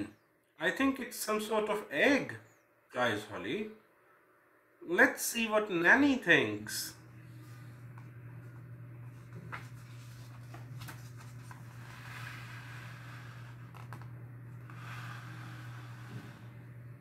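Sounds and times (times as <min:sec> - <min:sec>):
steady low hum: 0:00.0 - 0:17.0
paper page rustling: 0:09.0 - 0:16.4.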